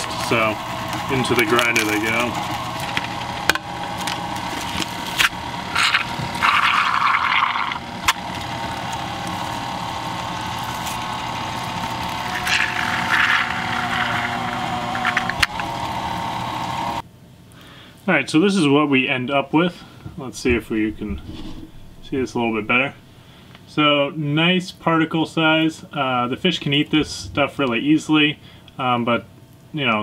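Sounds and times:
food grinder grinding clams: 0.0 - 17.0.

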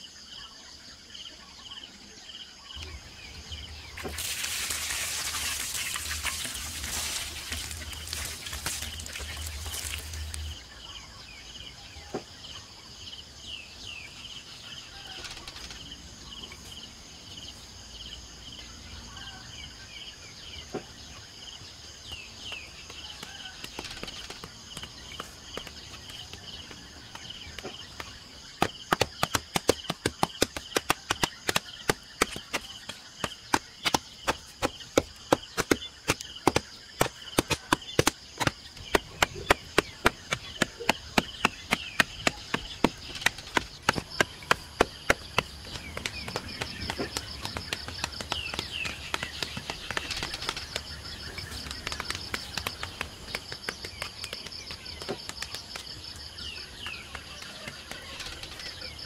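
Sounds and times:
birds chirping: 0.0 - 59.0
digging tool chopping hard earth: 22.5 - 55.8.

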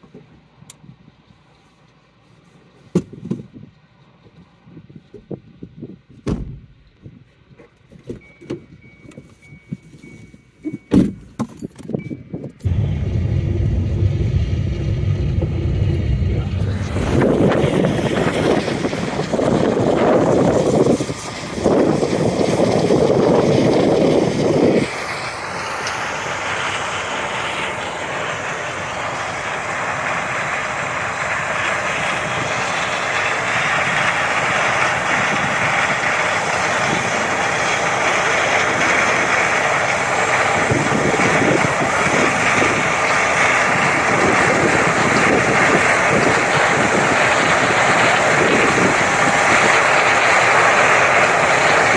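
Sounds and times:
combine harvester rumble: 12.0 - 51.9.

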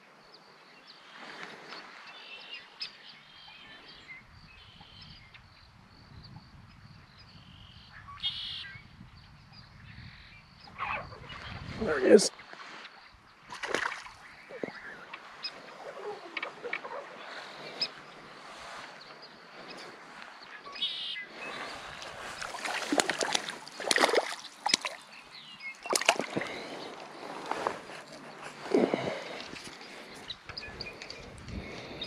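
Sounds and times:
fish splashing in water: 13.5 - 14.8, 21.6 - 25.2, 25.8 - 29.7.

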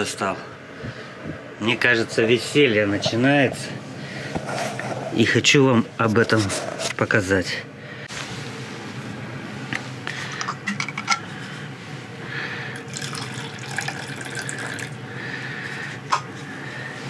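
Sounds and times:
liquid pouring into a cup: 12.8 - 15.0.

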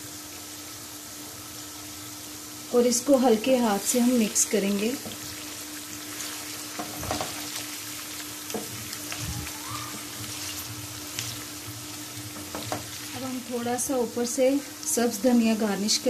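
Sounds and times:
food sizzling in a frying pan: 0.0 - 16.0
wooden spatula knocking on pan: 12.3 - 12.9.

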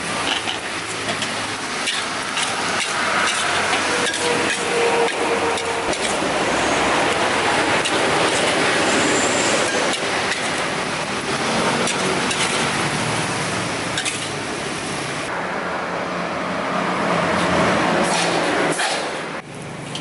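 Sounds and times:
steady rushing noise: 0.0 - 19.4
metal spatula scraping a wok: 0.2 - 14.5.

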